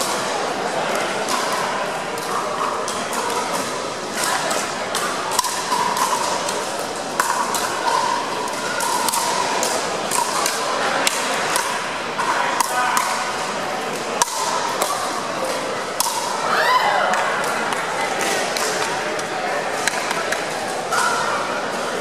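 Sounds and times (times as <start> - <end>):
faint background murmur: 0.0 - 22.0
paddles hitting plastic ball: 4.2 - 16.3.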